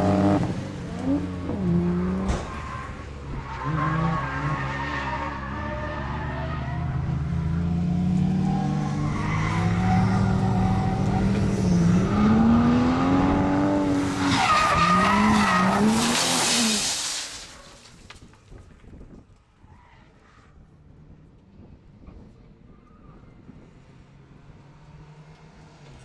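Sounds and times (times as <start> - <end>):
tyre squeal: 14.0 - 17.8.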